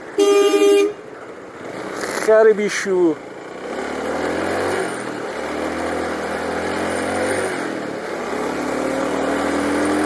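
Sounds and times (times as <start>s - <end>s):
motorcycle engine accelerating: 3.2s - 10.0s.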